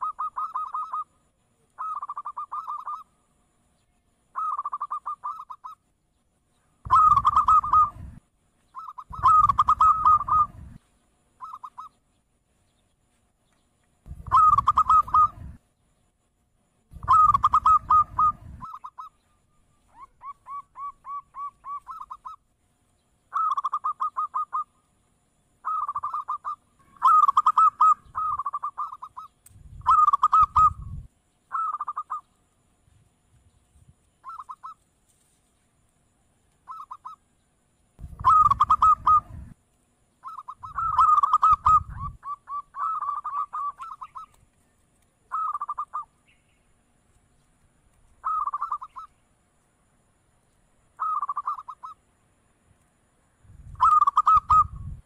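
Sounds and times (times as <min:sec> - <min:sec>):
doves cooing: 0:00.0 - 0:01.2, 0:01.8 - 0:03.1, 0:04.4 - 0:05.8, 0:06.8 - 0:10.8, 0:11.4 - 0:12.0, 0:14.1 - 0:15.6, 0:17.0 - 0:19.2, 0:19.9 - 0:22.4, 0:23.3 - 0:24.8, 0:25.6 - 0:32.3, 0:34.2 - 0:34.8, 0:38.0 - 0:39.6, 0:40.2 - 0:44.4, 0:45.3 - 0:46.1, 0:48.2 - 0:49.1, 0:51.0 - 0:52.0, 0:53.8 - 0:54.9.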